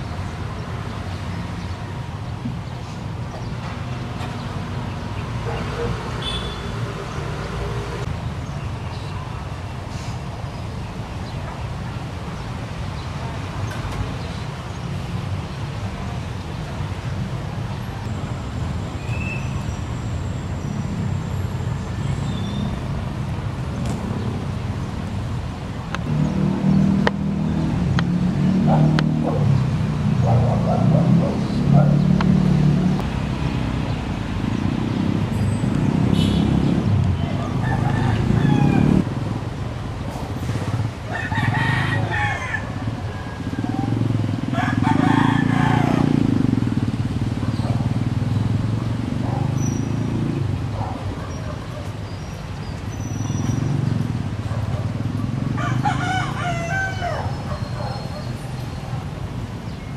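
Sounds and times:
traffic rumble: 0:00.0 - 0:59.9
rooster crowing: 0:37.5 - 0:39.0, 0:41.1 - 0:46.3, 0:55.6 - 0:58.0.

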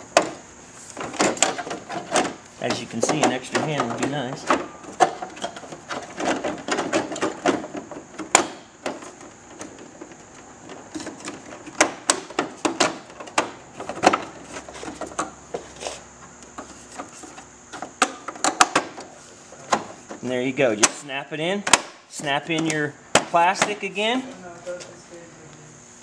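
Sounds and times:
rubbing and handling noise: 0:00.0 - 0:08.2, 0:08.8 - 0:21.0.

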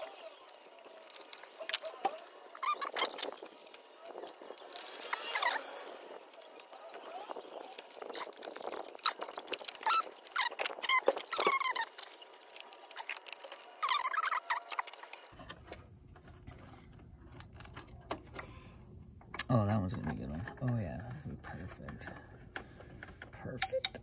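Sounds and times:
short squeaky chirps: 0:02.6 - 0:03.4, 0:13.8 - 0:15.2
faint low hum: 0:15.3 - 0:24.0.

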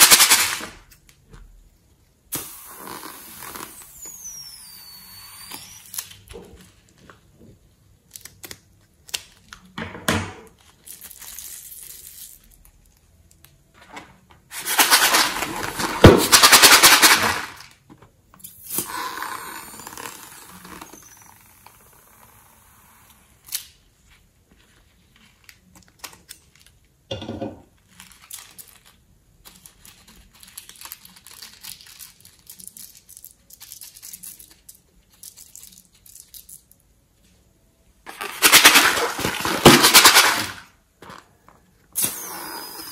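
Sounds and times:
scissors snipping balloons: 0:02.3 - 0:06.2.

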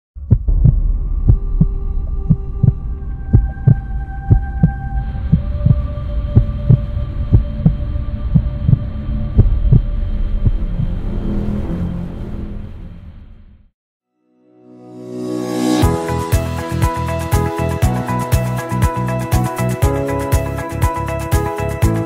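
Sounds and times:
heartbeat thumps: 0:00.2 - 0:10.9
low drone with held tones: 0:00.5 - 0:13.0.

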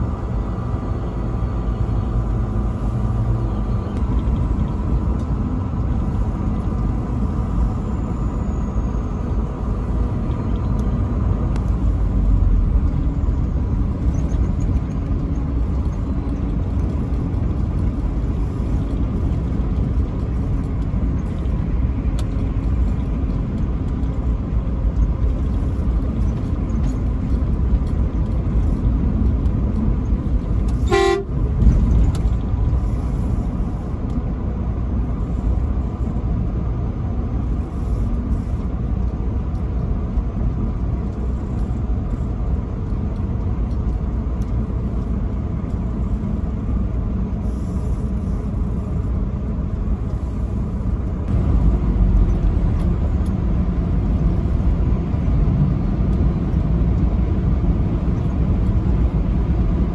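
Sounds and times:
truck road and engine rumble: 0:00.0 - 0:59.9
truck horn toot: 0:30.8 - 0:31.4.

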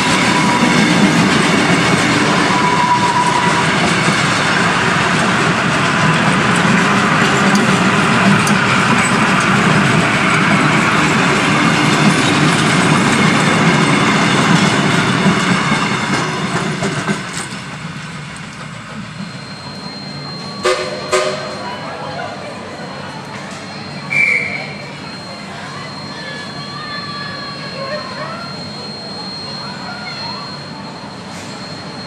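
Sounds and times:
wheels clickety-clack over rail joints: 0:00.0 - 0:19.9
train wheels rumbling: 0:00.0 - 0:32.0.

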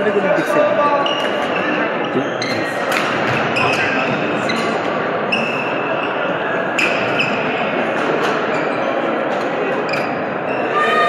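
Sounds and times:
echoing crowd chatter: 0:00.0 - 0:11.0
shoes squeaking on court floor: 0:01.0 - 0:06.2, 0:06.8 - 0:07.5, 0:09.8 - 0:10.7.

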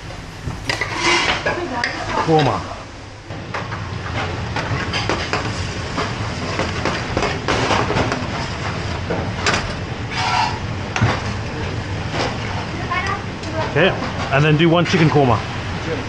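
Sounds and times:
kitchen roar: 0:00.0 - 0:16.0
metal ladles scraping pans: 0:00.7 - 0:02.6, 0:04.7 - 0:11.2.

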